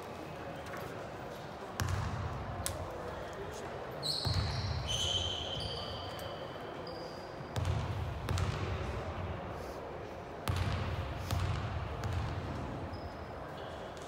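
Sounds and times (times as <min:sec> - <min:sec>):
high shoe squeak: 0:04.0 - 0:07.5, 0:12.9 - 0:13.7
basketball dribble thuds: 0:07.6 - 0:08.7, 0:10.4 - 0:12.5.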